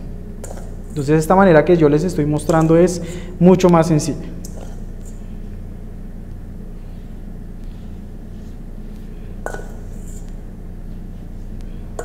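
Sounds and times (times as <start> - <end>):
low machine hum: 0.0 - 12.0
metal spoon knocking steel bowl: 9.5 - 9.8.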